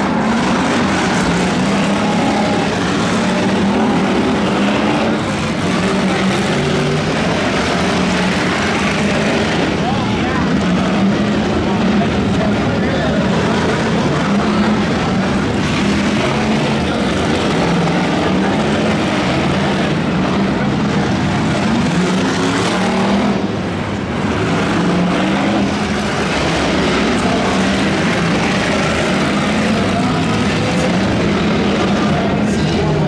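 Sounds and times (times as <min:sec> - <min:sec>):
race car engines: 0:00.0 - 0:33.0.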